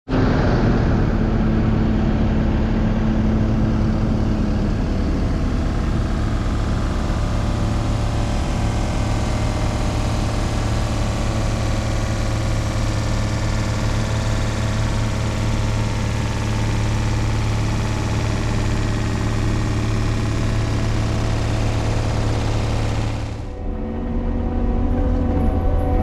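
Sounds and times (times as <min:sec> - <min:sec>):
vehicle engine droning: 0:00.1 - 0:26.0
higher tone: 0:21.3 - 0:26.0.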